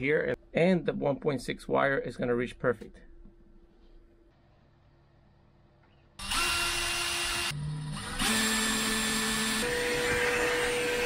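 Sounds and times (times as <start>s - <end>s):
cordless drill motor whine: 6.2s - 11.0s.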